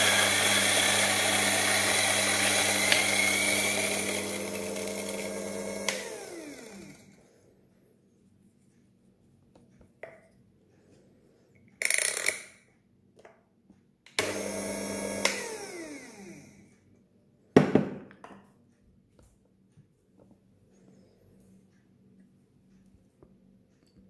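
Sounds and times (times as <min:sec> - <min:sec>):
coffee grinder motor whirring: 0:00.0 - 0:07.2, 0:14.2 - 0:16.6.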